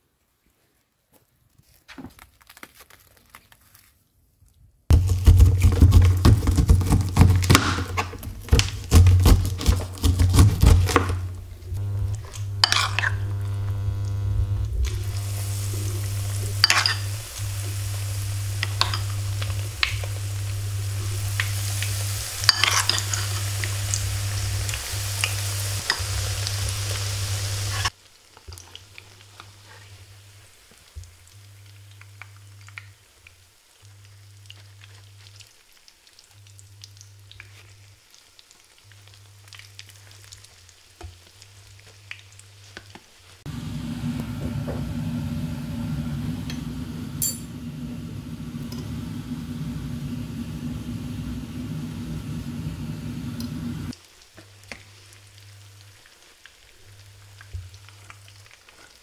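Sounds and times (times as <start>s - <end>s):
batter sizzling in oil: 4.9s - 59.0s
knife cutting on plastic board: 5.0s - 11.2s
steady low hum: 9.0s - 27.9s, 43.5s - 53.9s.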